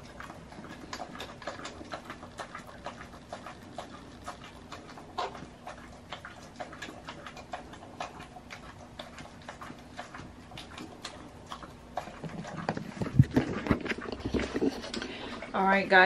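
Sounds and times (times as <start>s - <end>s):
dog licking from a bowl: 0.0s - 16.0s.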